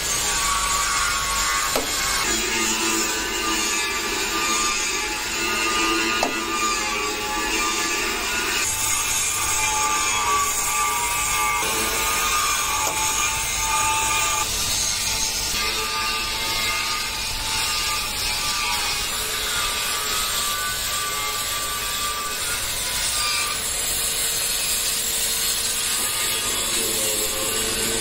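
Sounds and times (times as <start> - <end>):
cutting torch hissing: 22.2 - 28.0.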